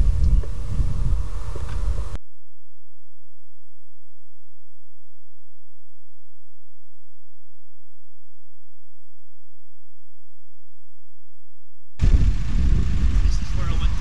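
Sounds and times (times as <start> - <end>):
electrical hum: 0.0 - 2.2, 11.7 - 14.0.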